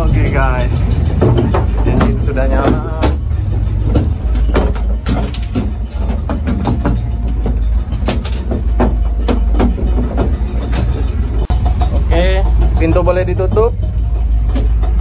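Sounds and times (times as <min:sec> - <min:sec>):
boat engine low rumble: 0:00.0 - 0:15.0
gear knocking and clattering: 0:00.0 - 0:15.0.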